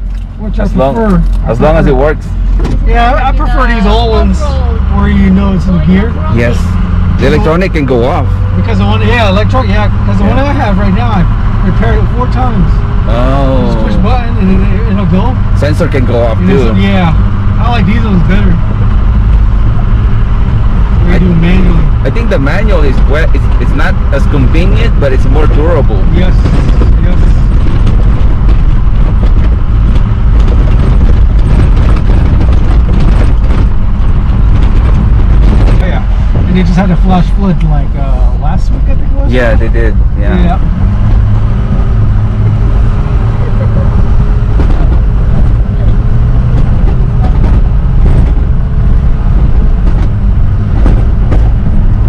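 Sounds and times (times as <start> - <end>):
truck engine and tyres rumbling: 0.0 - 52.0
knocks and rattles in truck cab: 2.5 - 2.9, 26.4 - 36.5, 44.0 - 52.0.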